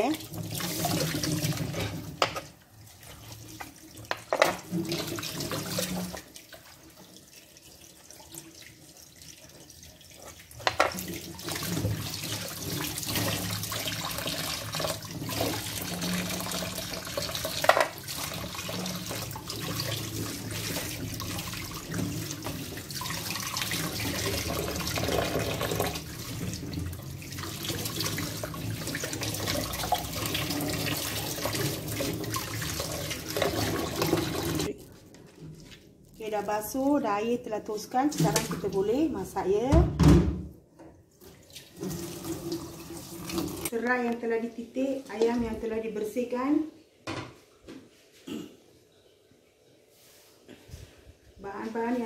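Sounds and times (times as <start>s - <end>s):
tap water running into sink: 0.0s - 34.7s, 38.1s - 38.8s, 40.0s - 43.7s.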